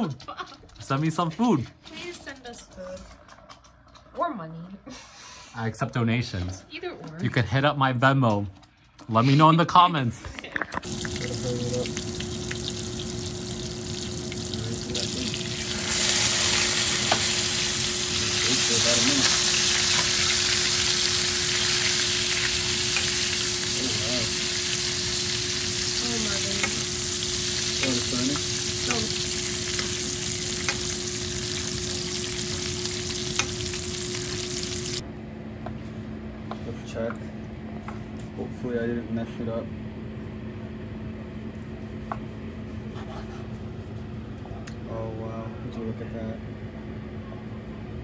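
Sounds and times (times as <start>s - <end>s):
steady low hum: 10.4s - 48.0s
steaks sizzling in a skillet: 10.8s - 35.0s.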